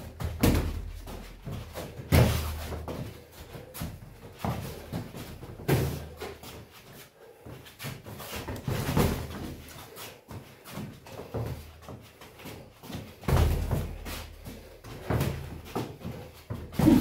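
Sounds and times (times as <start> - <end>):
boxing gloves thudding: 0.1 - 3.1, 3.8 - 6.3, 13.0 - 14.2.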